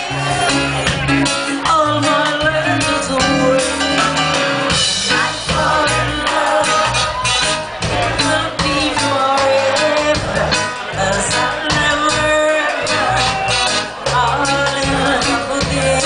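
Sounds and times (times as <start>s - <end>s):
drum kit beat: 0.0s - 16.0s
woman singing into a microphone: 1.4s - 4.3s, 5.1s - 7.0s, 8.0s - 13.0s, 14.1s - 16.0s.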